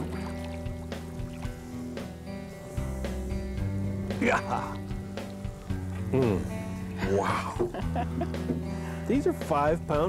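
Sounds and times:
fish splashing water: 0:00.0 - 0:06.1
background music with held notes: 0:00.0 - 0:10.0.

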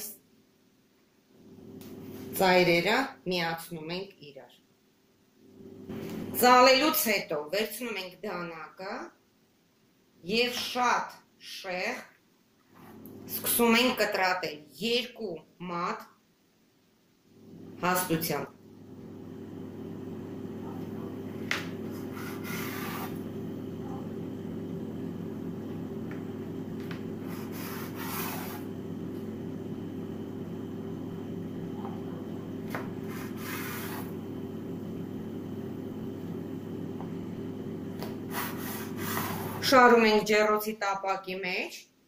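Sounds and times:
low hum: 0:17.2 - 0:39.9
knife cutting dough on worktop: 0:21.6 - 0:23.2, 0:27.2 - 0:28.7.

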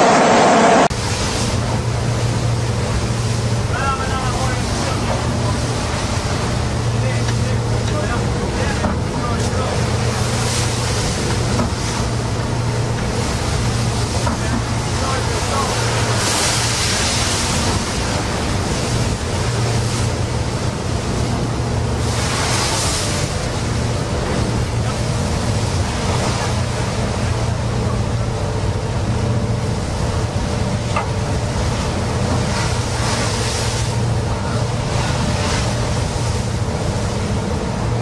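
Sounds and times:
boat engine drone: 0:00.0 - 0:38.0
heavy waves crashing: 0:00.0 - 0:38.0.

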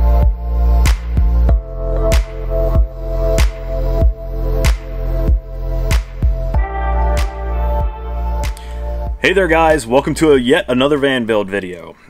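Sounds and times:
electronic music with synth and bass: 0:00.0 - 0:10.5.

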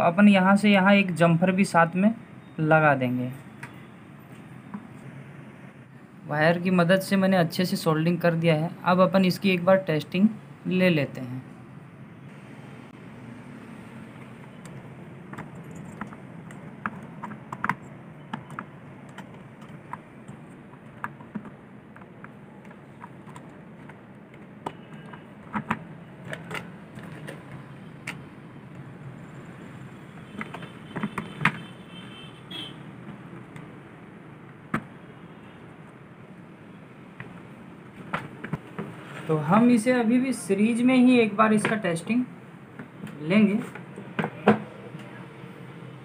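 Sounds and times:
clicks and knocks of parts handled: 0:14.6 - 0:28.9, 0:30.4 - 0:31.7.

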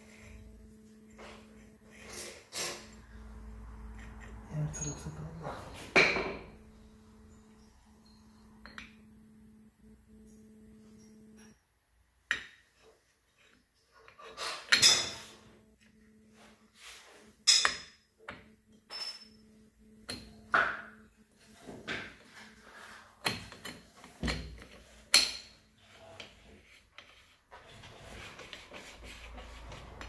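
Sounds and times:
faint steady hum: 0:00.0 - 0:11.7.

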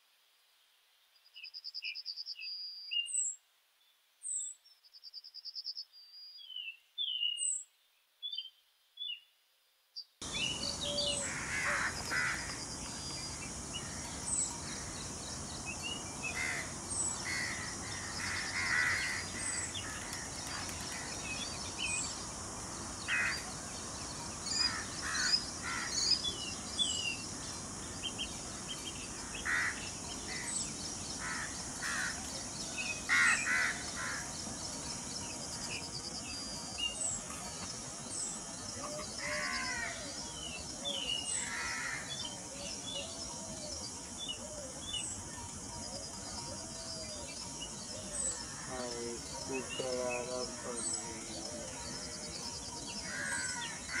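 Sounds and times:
harsh bird calls: 0:10.2 - 0:34.4, 0:47.8 - 0:54.0
birds chirping: 0:10.2 - 0:54.0
steady high hiss: 0:10.2 - 0:54.0.

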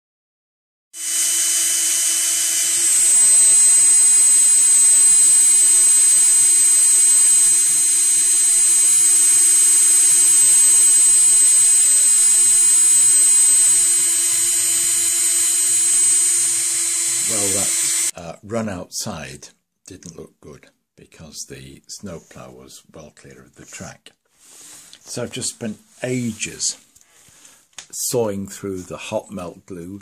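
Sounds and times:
power drill whining: 0:01.0 - 0:18.1.

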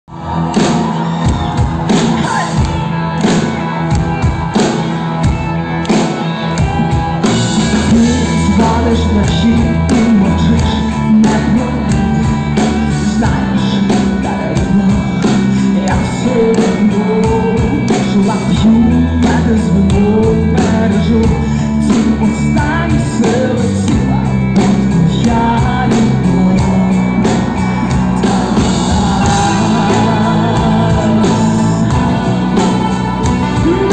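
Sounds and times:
live rock band playing: 0:00.1 - 0:33.9
drum beat: 0:00.2 - 0:20.1, 0:24.1 - 0:33.9
heavy bass line: 0:06.6 - 0:33.9
woman singing: 0:13.0 - 0:27.3, 0:28.2 - 0:33.9.

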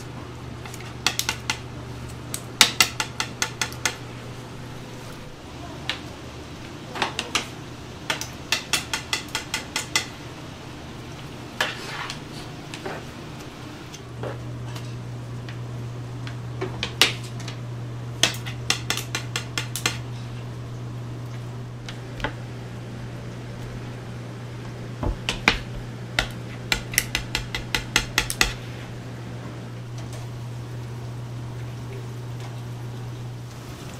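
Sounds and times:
metal spatula tapping on plastic board: 0:02.6 - 0:04.0, 0:08.1 - 0:10.1, 0:18.2 - 0:20.0, 0:25.3 - 0:28.6.

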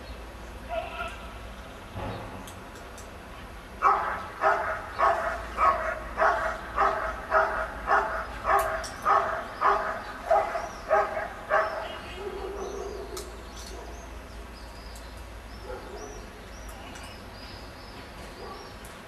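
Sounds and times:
dog barking: 0:03.8 - 0:14.0, 0:15.6 - 0:16.1.

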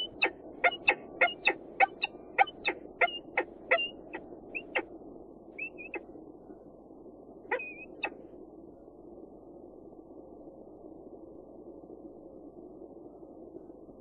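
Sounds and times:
falcon chipping calls: 0:00.0 - 0:04.8, 0:05.6 - 0:06.0, 0:07.5 - 0:08.2
drawn-out high falcon notes: 0:00.0 - 0:04.9, 0:05.6 - 0:06.1, 0:07.5 - 0:08.2.

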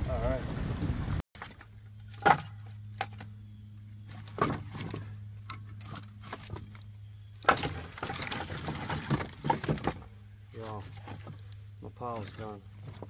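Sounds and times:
firewood knocking and clacking: 0:01.4 - 0:03.3, 0:07.4 - 0:13.0.

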